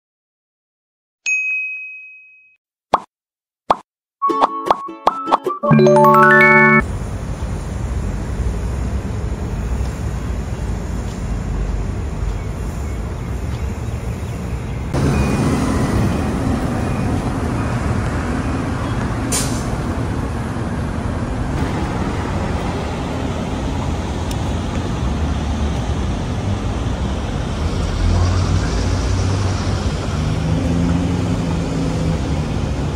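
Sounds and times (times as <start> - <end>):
passing vehicles rumble: 6.8 - 32.9
brief sharp hiss: 19.3 - 19.7.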